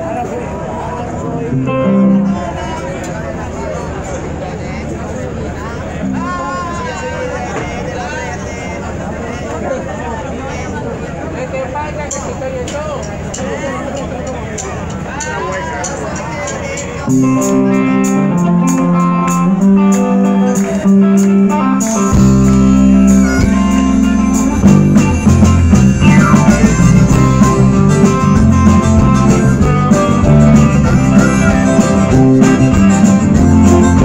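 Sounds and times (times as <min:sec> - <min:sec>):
electric guitars: 0:00.0 - 0:07.7, 0:14.8 - 0:34.0
bass: 0:00.0 - 0:34.0
harmonica through microphone: 0:21.5 - 0:34.0.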